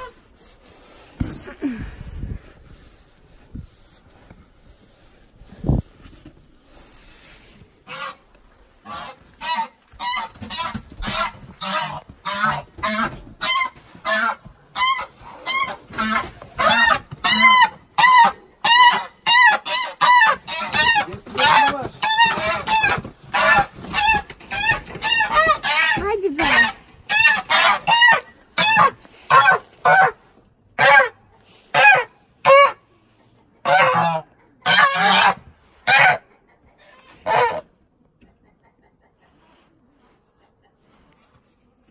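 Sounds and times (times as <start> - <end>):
geese honking in alarm: 8.8 - 30.2, 31.7 - 32.8, 33.6 - 36.2, 37.2 - 37.7.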